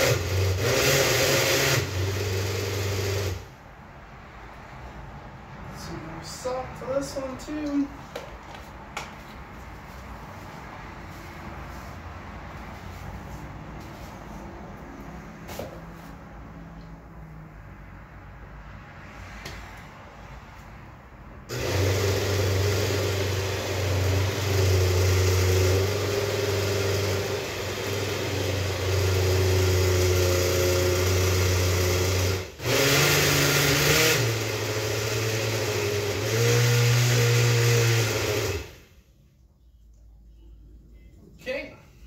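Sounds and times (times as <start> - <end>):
blender motor running: 0.0 - 3.5, 21.5 - 38.9.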